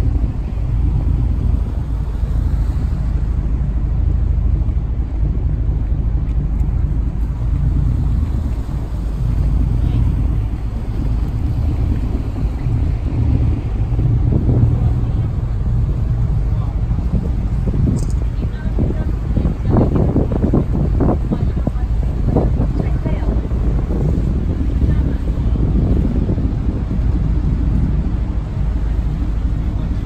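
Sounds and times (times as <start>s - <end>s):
motor yacht engine rumble: 0.0s - 30.0s
wind on microphone: 0.0s - 30.0s.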